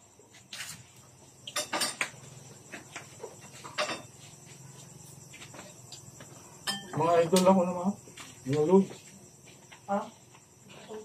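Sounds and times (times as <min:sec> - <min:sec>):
tableware clinking: 0:01.4 - 0:02.2, 0:03.5 - 0:04.2, 0:06.6 - 0:07.1.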